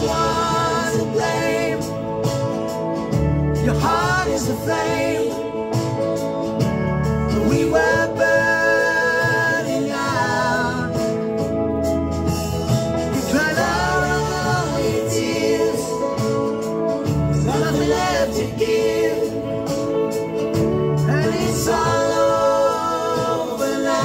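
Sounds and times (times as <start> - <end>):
man singing wordless held notes: 0.0 - 2.3, 3.6 - 5.7, 7.3 - 11.4, 13.1 - 16.7, 17.3 - 20.2, 21.0 - 24.0
band accompaniment: 0.0 - 24.0.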